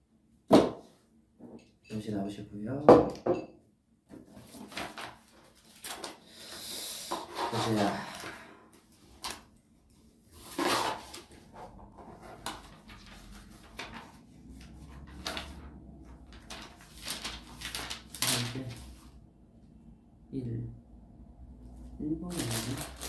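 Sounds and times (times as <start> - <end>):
paper pages rustling: 4.2 - 6.2, 9.0 - 9.5, 10.4 - 19.2, 22.3 - 23.0.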